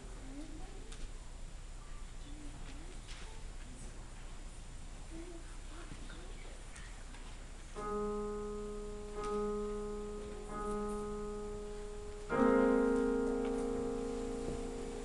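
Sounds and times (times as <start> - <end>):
piano notes played slowly: 7.8 - 15.0.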